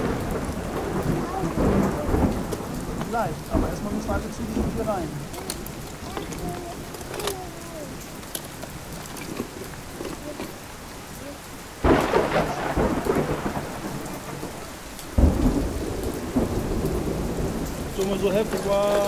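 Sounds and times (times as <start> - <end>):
rumbling thunderclaps: 0.0 - 7.2, 11.8 - 19.0
steady rain: 0.0 - 19.0.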